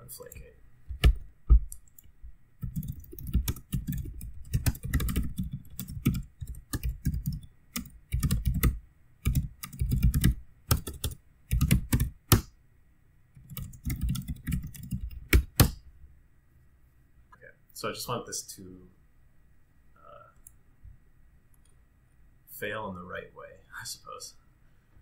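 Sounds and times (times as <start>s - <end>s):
typing on computer keyboard: 1.0s - 12.4s, 13.4s - 15.8s.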